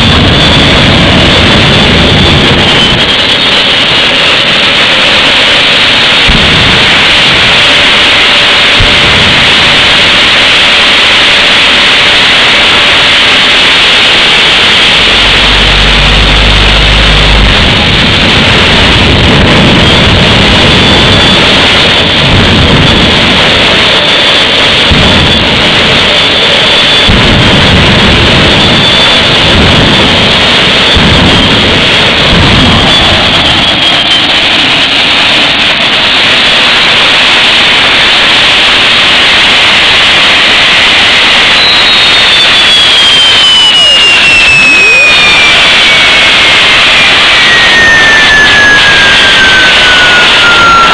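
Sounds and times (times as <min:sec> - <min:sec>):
faint high whine: 0:00.0 - 0:22.2, 0:39.8 - 0:50.9
jet turbine engine running: 0:00.0 - 0:50.9.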